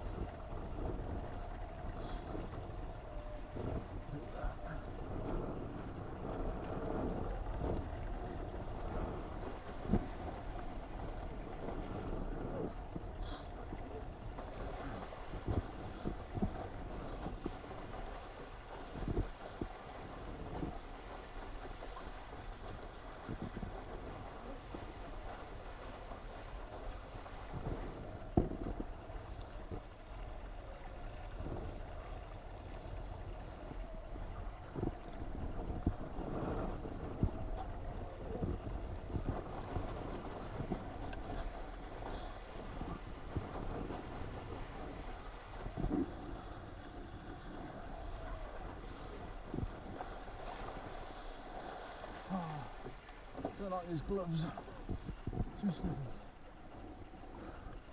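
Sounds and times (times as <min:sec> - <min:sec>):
faint steady hum: 0:00.0 - 0:57.9
water rushing past boat: 0:00.0 - 0:57.9
wind buffeting microphone: 0:00.0 - 0:57.9.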